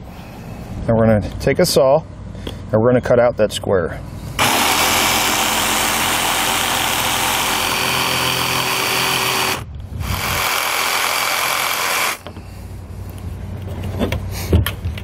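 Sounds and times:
jigsaw cutting panel: 4.4 - 12.2.

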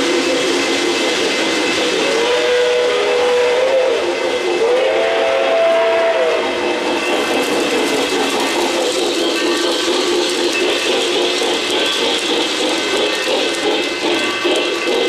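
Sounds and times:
model trains running: 0.0 - 15.0
model train whistle: 2.0 - 6.6.

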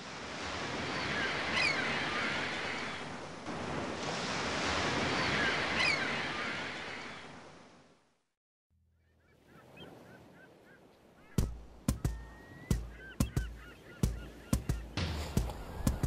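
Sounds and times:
ocean surf washing onto beach: 0.0 - 7.8, 11.3 - 16.0.

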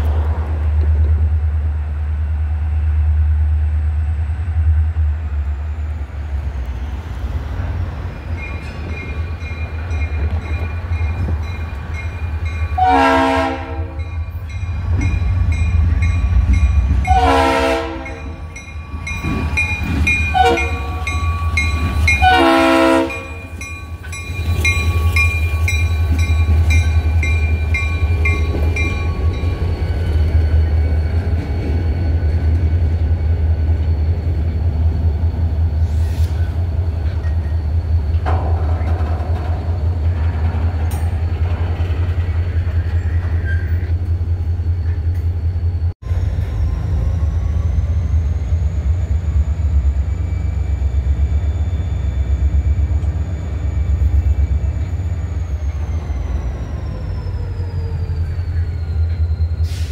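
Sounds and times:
train wheels on rails: 0.0 - 59.9
locomotive horn blasts: 12.8 - 14.1, 17.0 - 18.5, 20.3 - 23.5
diesel engines rumbling: 52.9 - 59.9.

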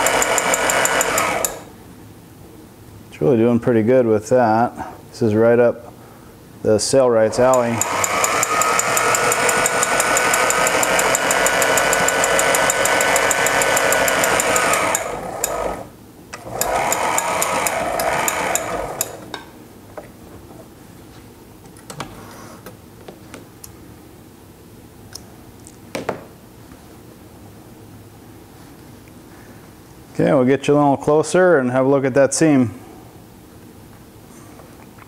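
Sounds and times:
handwheel clicks: 0.0 - 1.6, 7.4 - 15.8, 16.4 - 19.3
sewing machine stitching: 0.0 - 1.7, 7.3 - 19.3.

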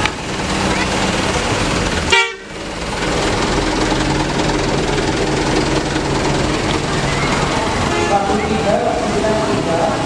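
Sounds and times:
truck engine running: 0.0 - 10.0
truck horn: 2.1 - 2.6, 7.0 - 8.6.

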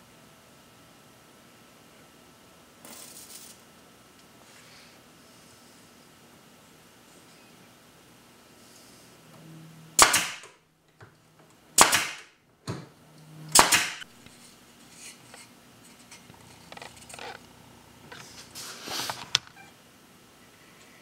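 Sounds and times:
sharp strikes on wood: 10.0 - 10.6, 11.8 - 12.3, 13.5 - 14.1.

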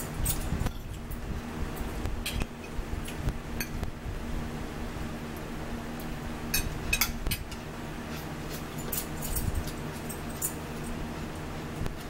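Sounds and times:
steady low hum: 0.0 - 12.0
forks clinking on plates: 0.2 - 1.0, 6.5 - 10.9.

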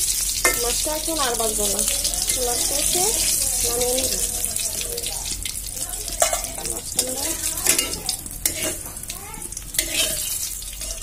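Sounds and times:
fish sizzling in hot oil: 0.0 - 11.0
metal spatula scraping pan: 0.3 - 0.8, 6.0 - 11.0.

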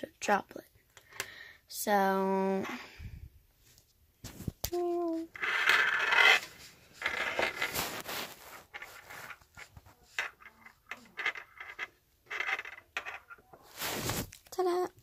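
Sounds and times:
rubbing and scraping: 3.6 - 14.4.

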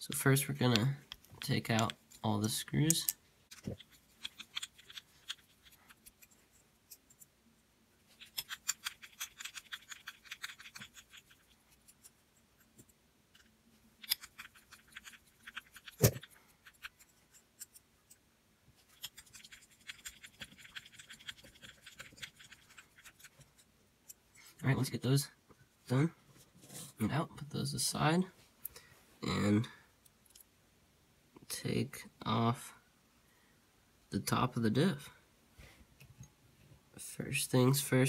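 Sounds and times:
screws ticking and scraping: 0.7 - 7.3, 8.2 - 18.2, 18.8 - 24.2.

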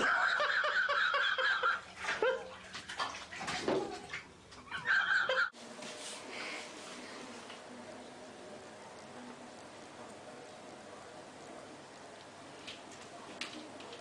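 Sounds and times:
bathwater splashing: 0.0 - 7.5.

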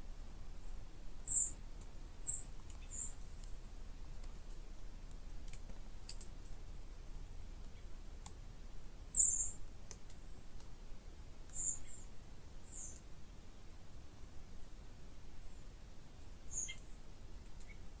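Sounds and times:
high-pitched bird chirps: 1.3 - 1.6, 2.3 - 3.1, 9.2 - 9.6, 11.5 - 12.0, 16.5 - 16.8
faint clicks: 4.2 - 6.6, 7.6 - 8.4, 9.8 - 10.7, 16.7 - 17.8.

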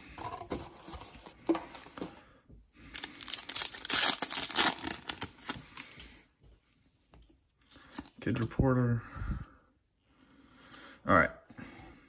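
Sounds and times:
foil wrapper tearing and crinkling: 3.0 - 5.6.

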